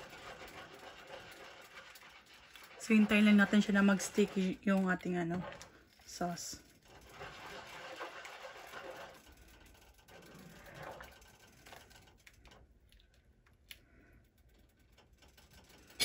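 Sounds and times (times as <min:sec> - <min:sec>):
thick sauce stirring in pan: 0:00.0 - 0:12.4.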